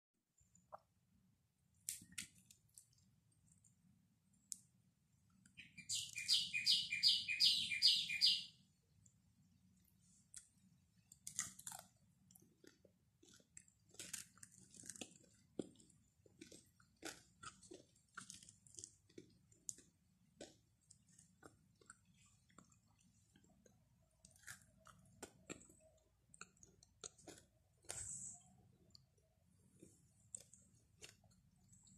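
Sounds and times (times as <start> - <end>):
chewing flatbread: 10.2 - 31.9.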